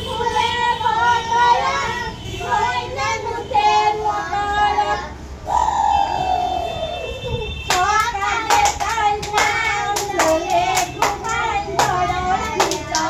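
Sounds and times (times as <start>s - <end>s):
children chanting a rhyme: 0.0s - 5.2s, 7.8s - 13.0s
hand claps: 7.7s - 13.0s.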